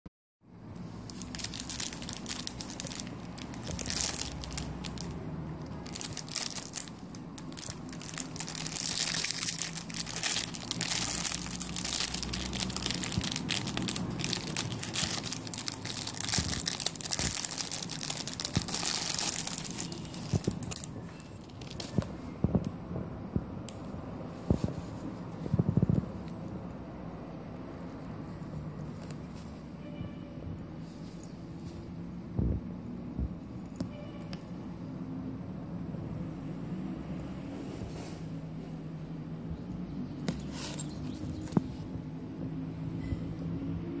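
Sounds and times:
plastic bag crinkling: 0.8 - 22.0.

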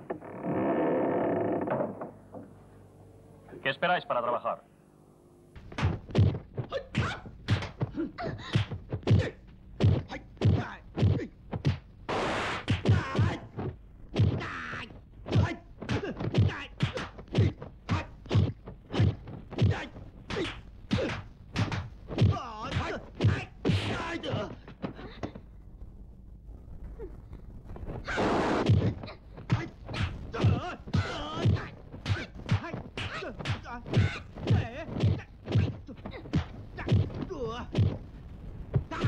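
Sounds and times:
hard thuds and whacks: 5.6 - 14.5, 15.2 - 25.4, 28.6 - 38.0.

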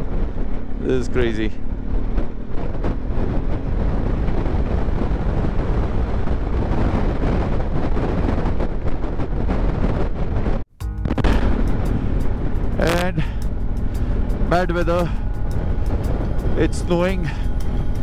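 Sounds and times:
motorcycle engine running: 0.0 - 7.1, 10.8 - 18.0
wind buffeting microphone: 0.0 - 18.0.

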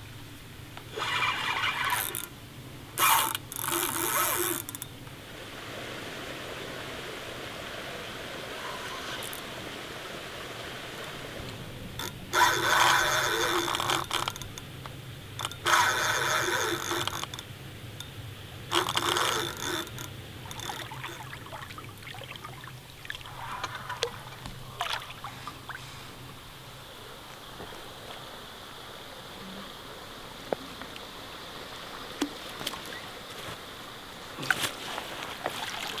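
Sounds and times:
fishing reel drag buzzing: 0.9 - 2.3, 3.0 - 4.9, 8.6 - 9.4, 12.0 - 14.6, 15.4 - 17.5, 18.7 - 21.5
faint reel ticks: 11.0 - 21.2.

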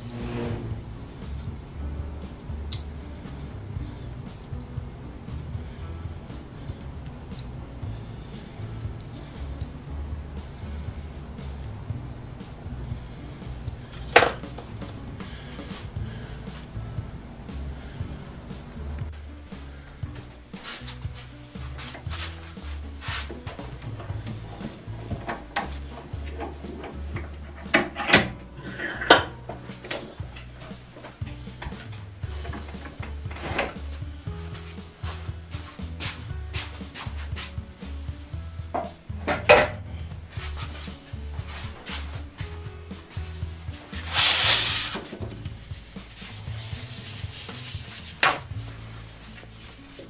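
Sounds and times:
plastic tray sliding on bench: 0.0 - 0.8
low steady hum: 0.0 - 50.0.

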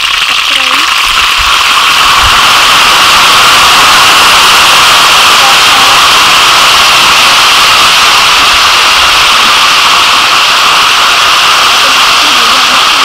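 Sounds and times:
chicken frying in hot oil: 0.0 - 13.0.

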